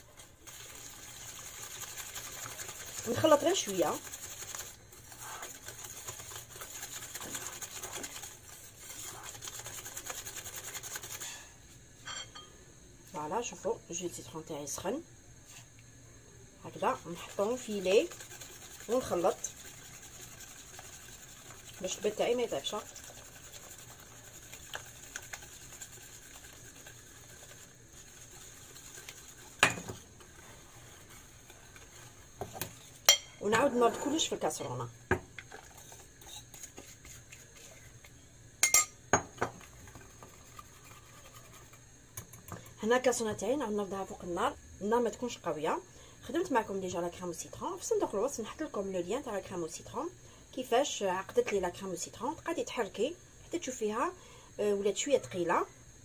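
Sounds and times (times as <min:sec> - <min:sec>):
whisk scraping glass bowl: 0:00.0 - 0:12.2, 0:16.8 - 0:34.6, 0:35.4 - 0:41.8.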